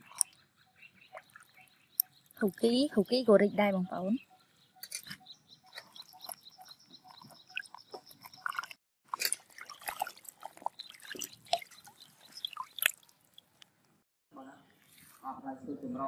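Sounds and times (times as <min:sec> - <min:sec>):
water splashing in a metal bowl: 0:07.1 - 0:13.8.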